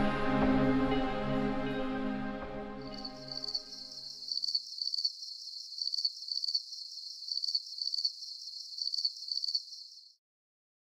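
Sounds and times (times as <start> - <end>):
crickets chirping: 2.8 - 10.1.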